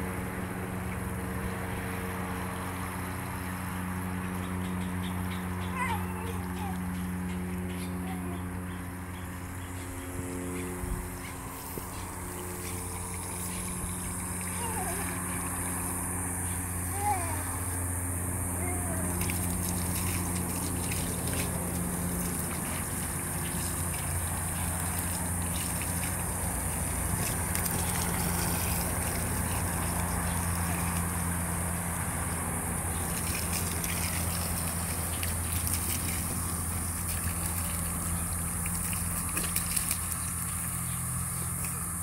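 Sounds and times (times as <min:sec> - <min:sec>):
low hum: 0:00.0 - 0:42.0
water gushing from hose: 0:11.1 - 0:42.0.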